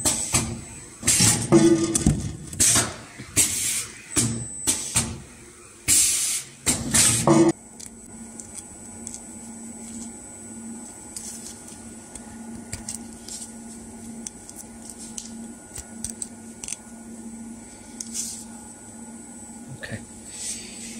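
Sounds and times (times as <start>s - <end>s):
machinery low hum: 6.5s - 20.9s.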